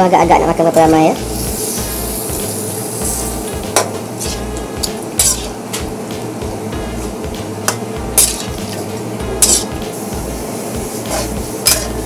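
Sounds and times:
background music with steady beat: 0.0s - 12.0s
utensil clinking against a pot: 9.4s - 9.8s.

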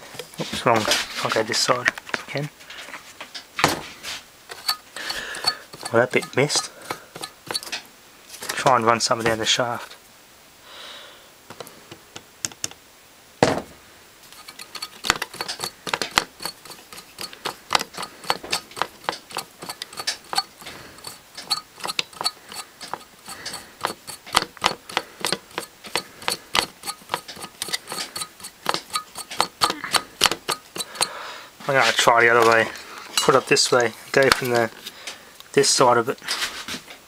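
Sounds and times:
plastic parts clicking and tapping: 4.5s - 7.8s, 11.5s - 12.8s, 14.3s - 31.2s.

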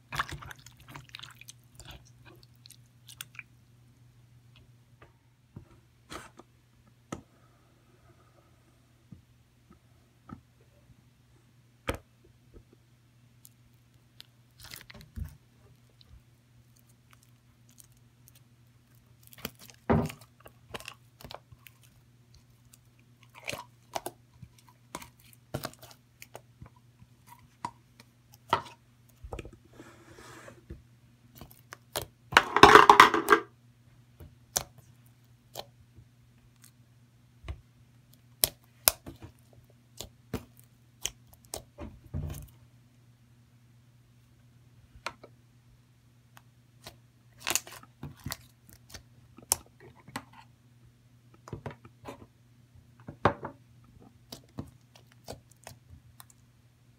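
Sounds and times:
slime squelch: 0.0s - 3.7s, 13.4s - 29.3s, 31.3s - 32.2s, 38.0s - 42.6s, 46.3s - 50.5s, 54.0s - 56.5s
faint low hum: 0.0s - 56.9s.

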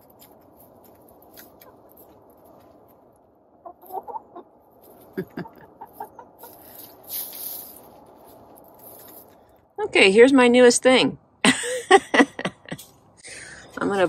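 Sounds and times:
hens clucking: 3.5s - 7.0s.

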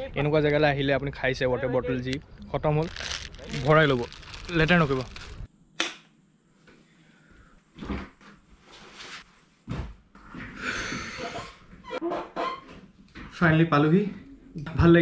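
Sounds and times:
rustling scrape of office chair: 8.6s - 9.5s.

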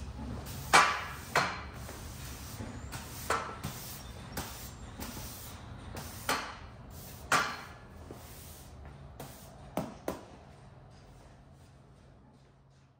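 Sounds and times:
push broom sweeping concrete: 0.5s - 6.3s.

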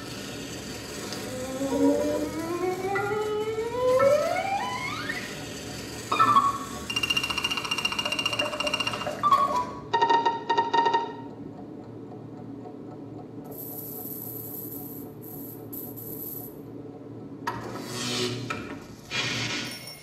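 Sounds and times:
steady low hum: 0.0s - 10.0s
tuned percussion notes: 9.9s - 11.4s.

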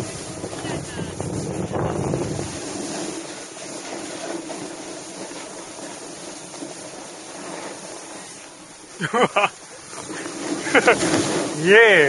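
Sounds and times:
wind on microphone: 0.0s - 5.8s
board sliding over snow: 0.0s - 12.0s.

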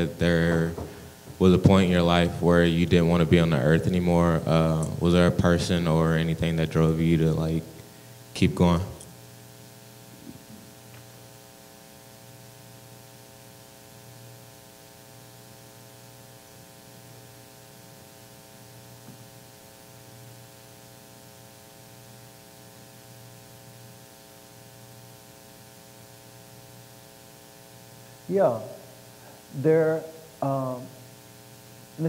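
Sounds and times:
electrical mains hum: 0.0s - 32.0s
faint hiss: 15.0s - 32.0s.

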